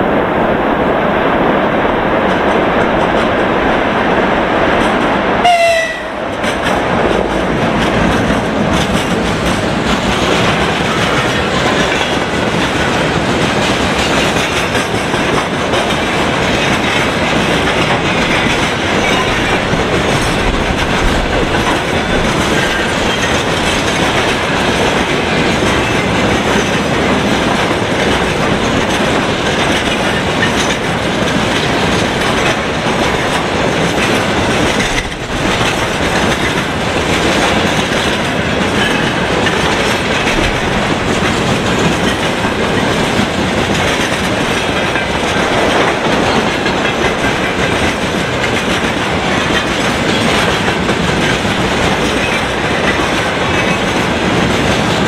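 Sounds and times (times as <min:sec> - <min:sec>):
train wheels clattering over rail joints: 0:04.7 - 0:55.0
electric locomotive horn blast: 0:05.4 - 0:06.3.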